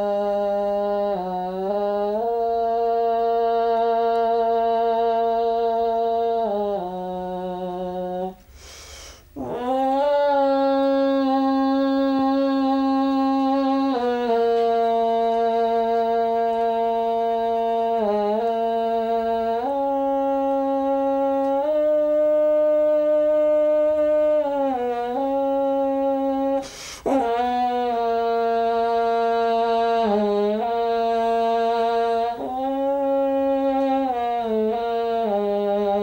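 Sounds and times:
long curved horn held notes: 9.4s - 36.0s.

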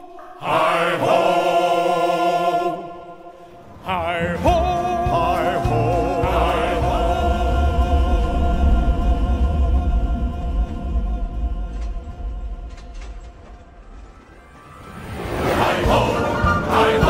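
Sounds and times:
choir singing held notes: 0.0s - 17.0s
deep low rumble: 6.8s - 16.3s.

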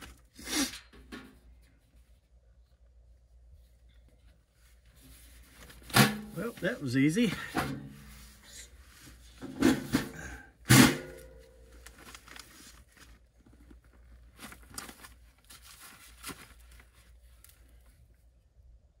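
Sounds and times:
plastic sheeting crinkling: 4.6s - 8.4s, 11.6s - 18.0s.

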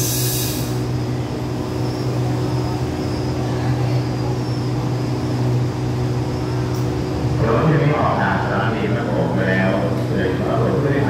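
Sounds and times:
diesel train engine idling: 0.0s - 11.0s.

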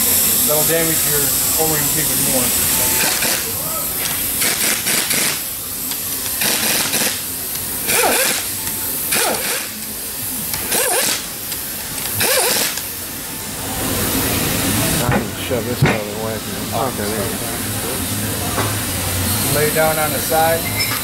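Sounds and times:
pneumatic impact wrench bursts: 0.0s - 13.0s.

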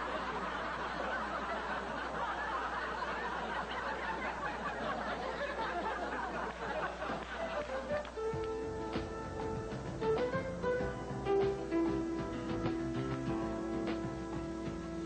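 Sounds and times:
audience laughing: 0.0s - 8.1s.

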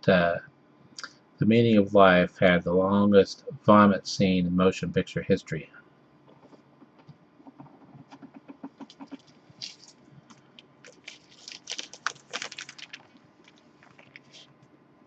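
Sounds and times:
plastic sleeve crinkling: 8.8s - 14.5s.

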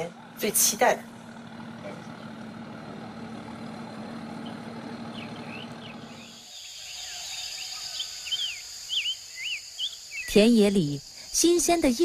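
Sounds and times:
barge engine humming: 0.0s - 6.5s
birds chirping: 0.1s - 12.0s
insect buzz: 6.1s - 12.0s.

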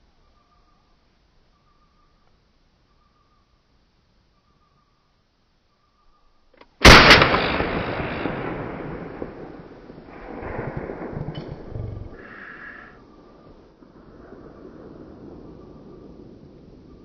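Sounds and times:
sharp crack: 6.6s - 13.0s
loud gunshot: 6.8s - 11.1s
rolling echo: 6.8s - 17.0s.

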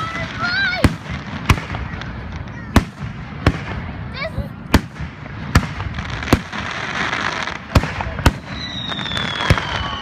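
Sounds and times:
fireworks bangs: 0.0s - 10.0s
firework whistle falling: 8.4s - 10.0s.

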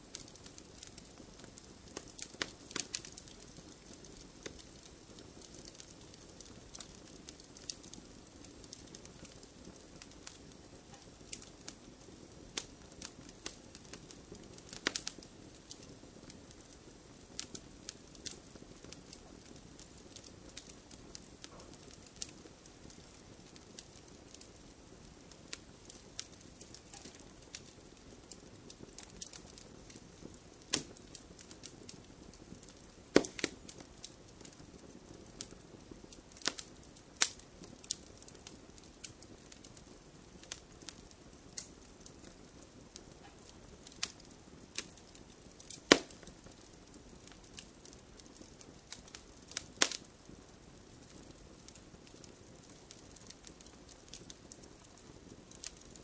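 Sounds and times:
wood fire crackling: 0.0s - 56.0s.

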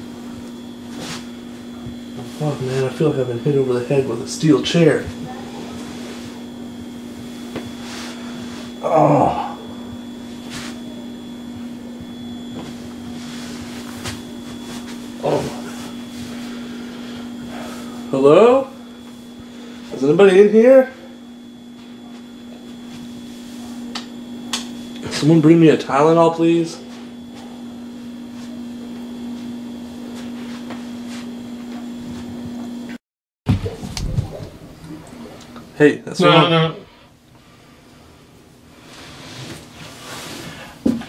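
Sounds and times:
low hum: 0.0s - 20.2s, 33.5s - 40.2s.

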